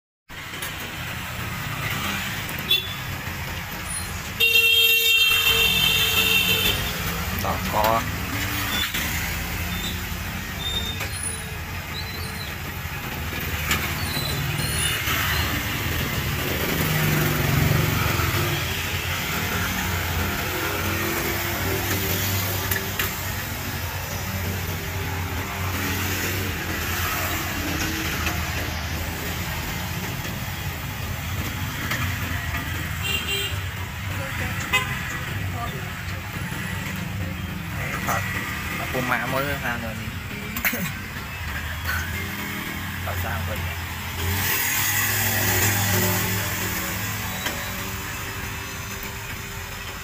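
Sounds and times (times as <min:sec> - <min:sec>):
street traffic rumble: 0:00.3 - 0:50.0.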